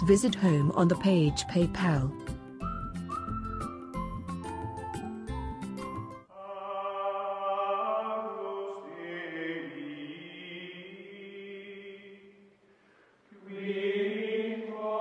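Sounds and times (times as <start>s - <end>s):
chant-like voices holding long notes: 6.3s - 12.5s, 13.3s - 15.0s.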